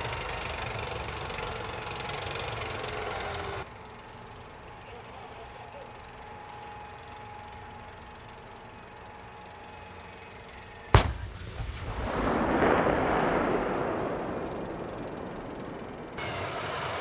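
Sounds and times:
faint steady whine: 0.0s - 17.0s
rolling rumble: 0.0s - 17.0s
tank gun blast: 10.9s - 17.0s.

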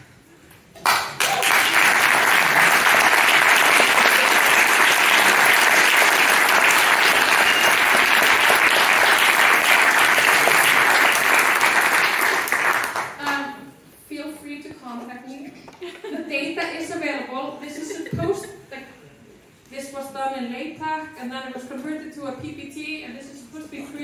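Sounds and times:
audience applauding: 0.8s - 13.3s.

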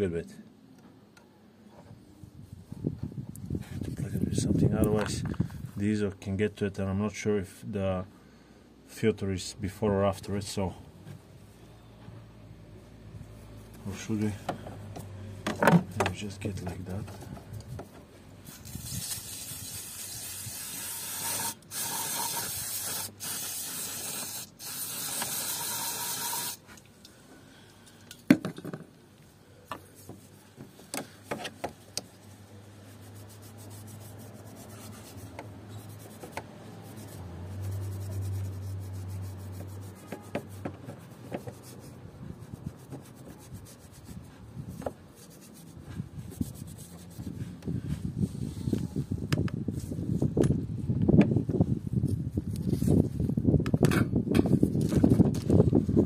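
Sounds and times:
aerosol spray hissing: 18.5s - 26.6s
rubbing and wiping clicks: 29.2s - 47.6s.

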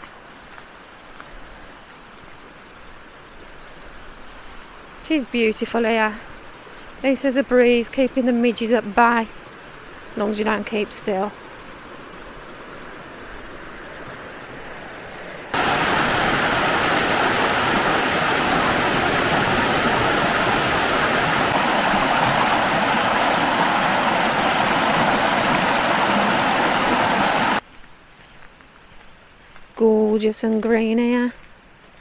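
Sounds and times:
river rushing over rocks: 15.5s - 27.6s.

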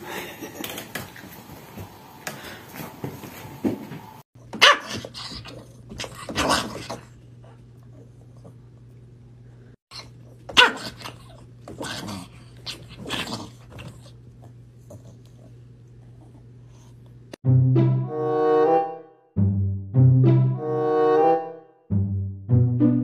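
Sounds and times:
small dog barking: 4.6s - 5.4s, 10.5s - 11.2s.

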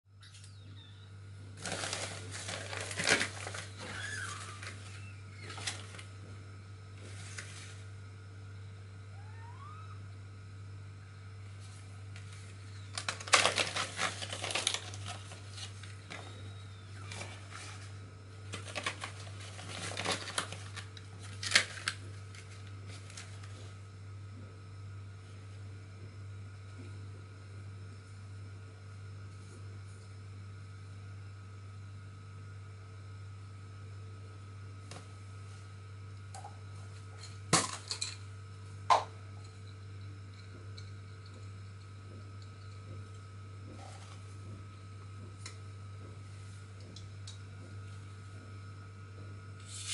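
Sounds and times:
steady low hum: 0.1s - 49.9s
plastic packaging crinkling: 1.6s - 6.1s, 12.2s - 16.4s, 17.0s - 23.6s.

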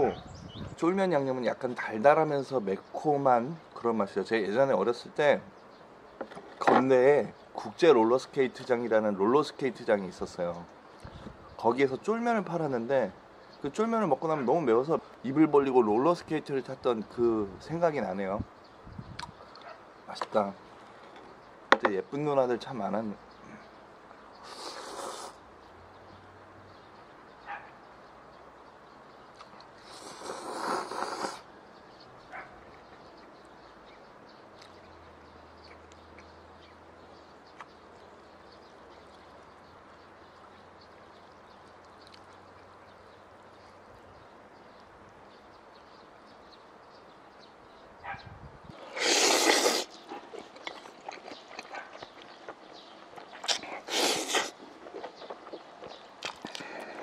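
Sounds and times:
faint hiss: 22.7s - 26.0s, 29.7s - 31.7s, 48.7s - 50.0s, 53.4s - 54.6s
person slurping noodles: 24.4s - 25.4s, 29.8s - 31.4s, 48.8s - 50.4s, 53.4s - 54.6s
soft chewing: 37.5s - 42.8s, 48.7s - 57.0s.

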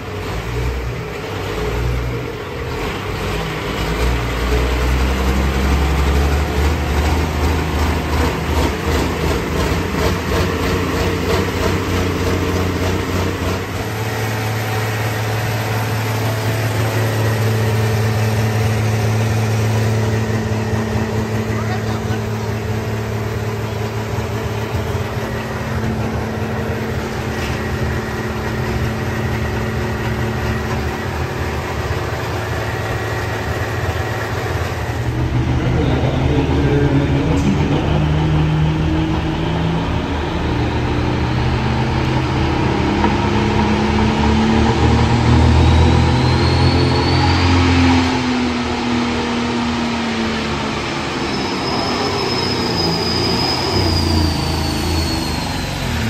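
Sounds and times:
diesel tractor engine: 0.0s - 56.0s
rising whistle: 44.6s - 48.9s, 49.6s - 56.0s.

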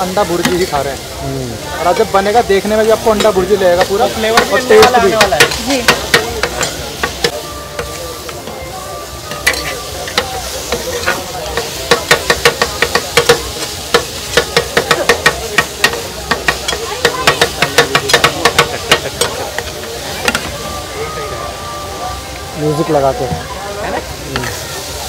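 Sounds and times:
food sizzling in oil: 0.0s - 25.0s
metal spatula scraping a pan: 9.3s - 15.3s.

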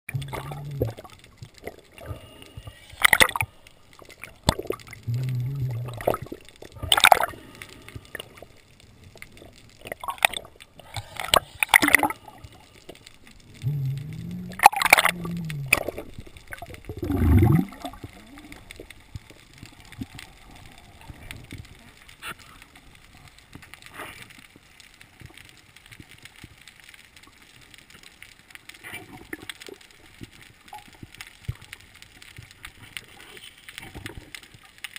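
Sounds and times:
water gurgling underwater: 0.1s - 22.3s.

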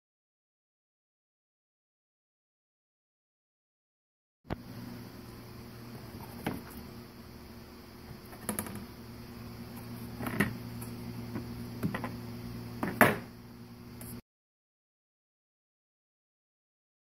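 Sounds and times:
steady low hum: 4.5s - 14.2s.

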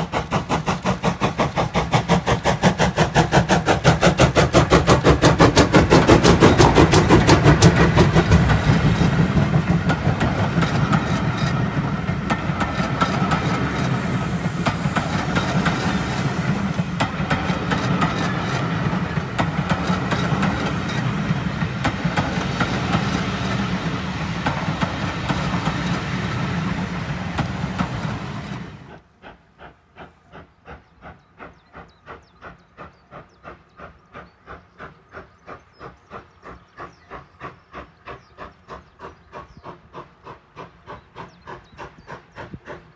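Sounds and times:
wheel clicks over rail joints: 0.0s - 28.9s
distant steam locomotive exhaust beats: 0.0s - 42.9s
steam hiss: 0.0s - 42.9s
train coaches rumbling past: 0.0s - 42.9s.

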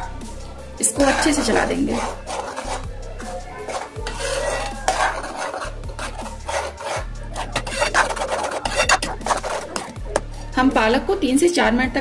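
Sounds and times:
metal spoon scraping a pan: 0.8s - 10.5s.

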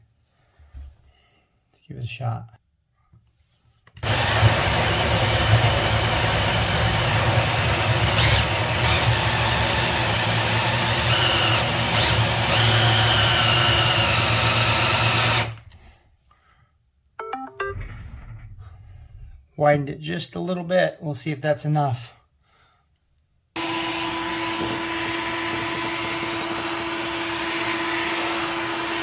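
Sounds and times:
drill with hole saw cutting wood: 4.0s - 15.7s, 23.6s - 29.0s.

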